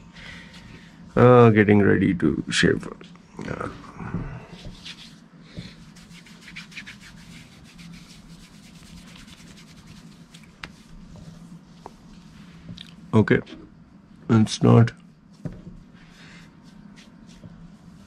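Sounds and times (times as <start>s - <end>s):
faint low hum: 0.0s - 18.0s
hands rubbing stubble: 4.4s - 13.1s, 15.2s - 18.0s.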